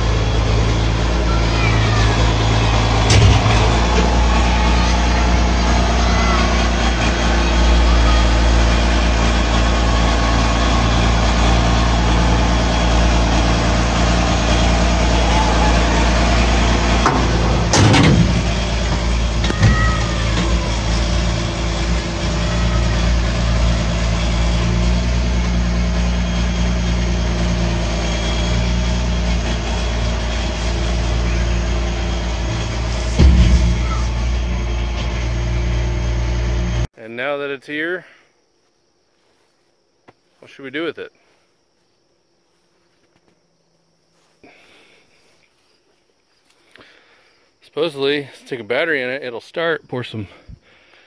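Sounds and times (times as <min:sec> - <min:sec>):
truck engine running: 0:00.0 - 0:36.9
clunk: 0:03.0 - 0:04.1, 0:16.8 - 0:21.1, 0:32.3 - 0:35.3.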